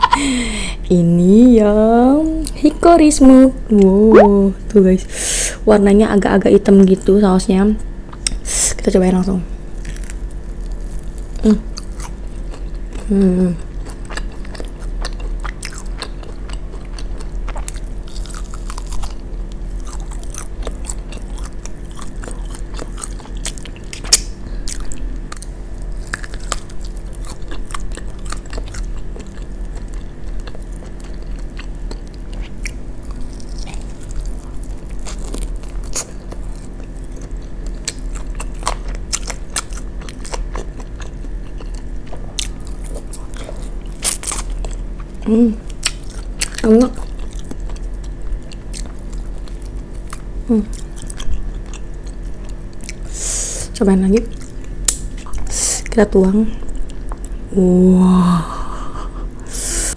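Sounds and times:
low hum: 0.0 - 59.9
chewing and biting: 9.7 - 53.1, 54.2 - 56.0, 56.6 - 57.4.

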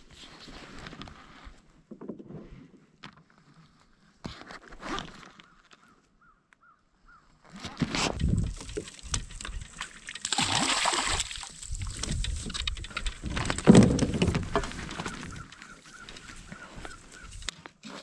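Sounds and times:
water splashing at kayak side: 8.0 - 16.0
handling knocks and rustling: 11.2 - 18.0.

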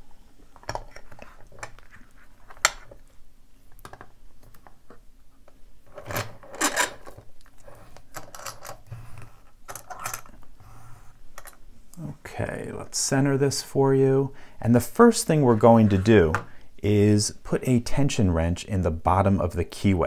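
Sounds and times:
lock cylinder clicking and clinking: 6.0 - 7.2, 8.0 - 8.8.

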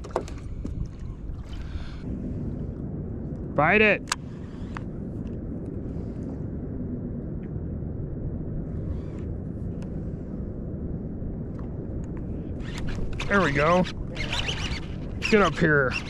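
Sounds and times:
water noise: 0.0 - 6.2, 9.5 - 16.0
low wind: 0.0 - 16.0.

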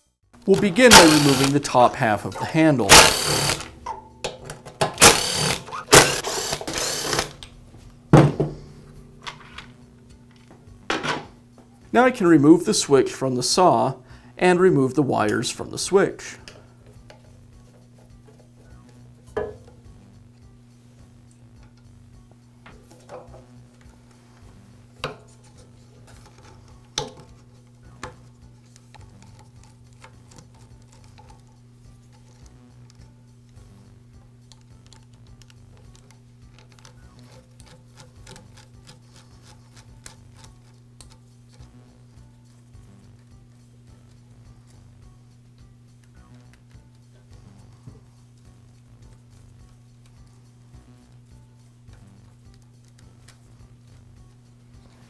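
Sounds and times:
screwdriver clicking on plastic: 34.5 - 41.2.

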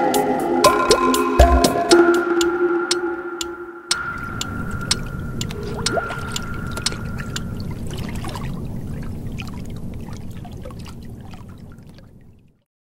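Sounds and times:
small drip-like clicks: 3.9 - 8.1
water pouring and bubbling: 4.0 - 12.6.

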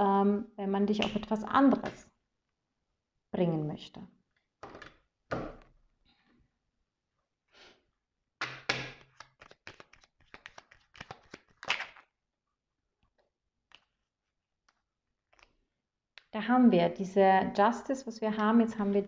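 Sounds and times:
cards slapping while shuffled: 8.4 - 12.1.

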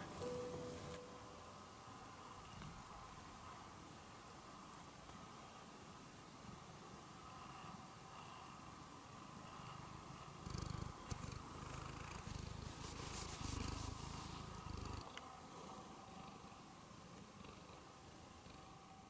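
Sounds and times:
cat purring: 6.3 - 19.0
soft rubbing on microphone: 11.9 - 15.0.

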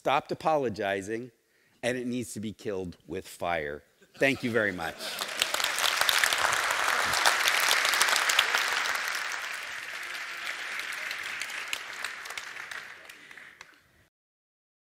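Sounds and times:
audience applauding: 4.6 - 13.9.

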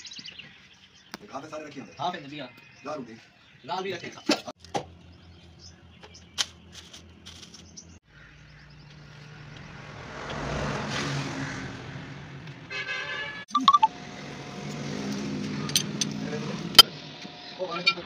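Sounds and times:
vehicle engine revving: 9.1 - 12.7, 13.9 - 16.9.

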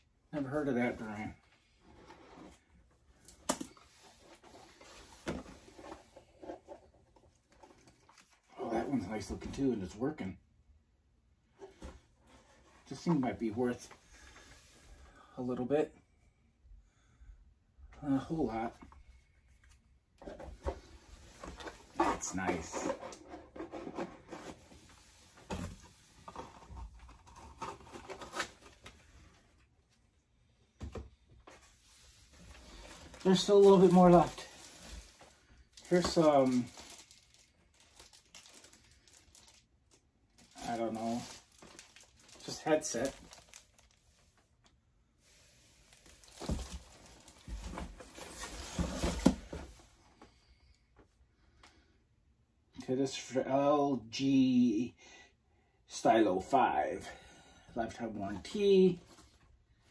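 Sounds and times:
items rustling on a table: 19.6 - 29.7, 30.8 - 39.6, 40.4 - 50.4.

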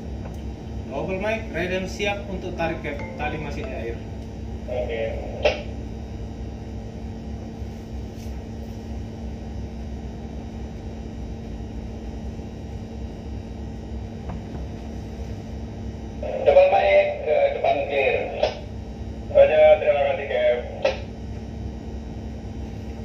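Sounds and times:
voice over handheld radio: 16.2 - 18.6, 19.3 - 20.9.

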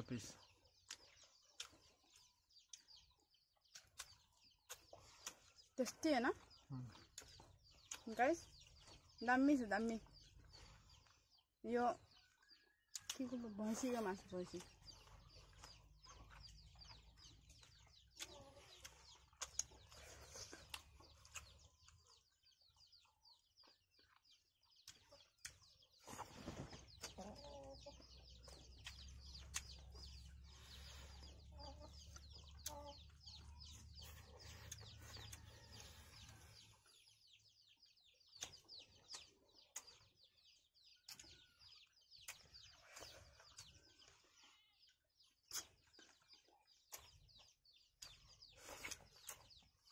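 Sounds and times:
small birds chirping: 0.0 - 49.9
chewing clicks: 0.8 - 9.0, 12.2 - 13.3, 14.4 - 26.0, 28.4 - 30.2, 32.0 - 36.4, 38.2 - 44.1, 45.4 - 49.9
chickens clucking: 24.0 - 37.4.

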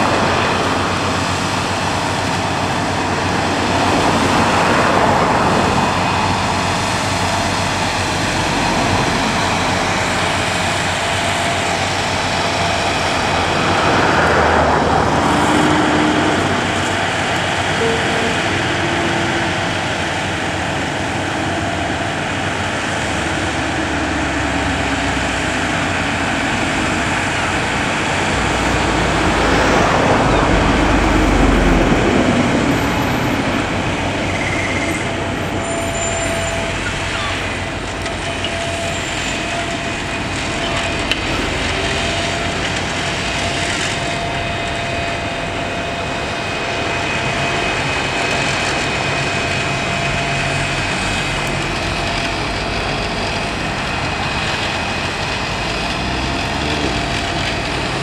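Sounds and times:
mower engine running: 25.5 - 58.0.

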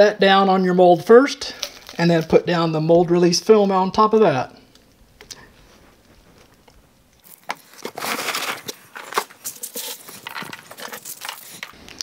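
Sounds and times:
packaging crinkling and rustling: 1.6 - 2.4, 5.6 - 12.0.

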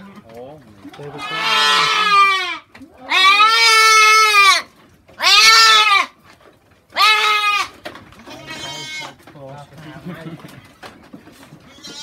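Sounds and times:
goat bleating loudly: 1.1 - 6.2, 6.9 - 9.2, 11.6 - 12.0.

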